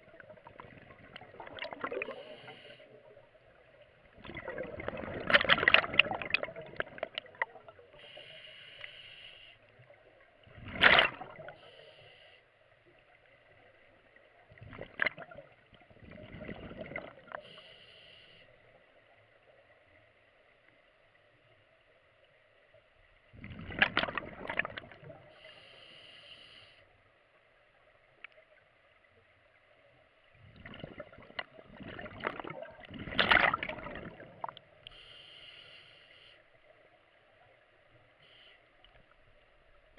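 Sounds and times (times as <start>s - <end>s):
gurgling exhaled bubbles: 0.0s - 3.3s, 3.9s - 7.8s, 10.4s - 11.6s, 14.5s - 17.4s, 23.3s - 25.3s, 30.4s - 34.7s
regulator air hiss: 2.1s - 3.0s, 7.9s - 9.7s, 11.6s - 12.5s, 17.4s - 18.6s, 25.3s - 26.9s, 34.9s - 36.5s.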